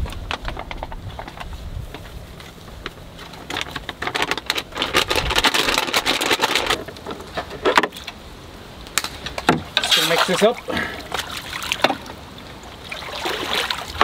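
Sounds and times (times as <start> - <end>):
muddy water splashing in bathtub: 9.8 - 14.0.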